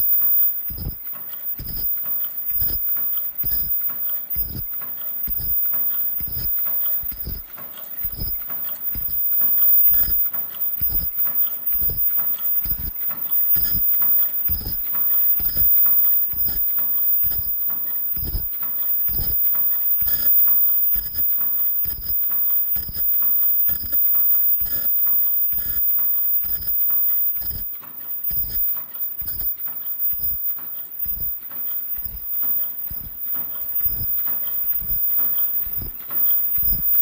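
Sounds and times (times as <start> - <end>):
machine knocking with clicks: 0.0 - 37.0.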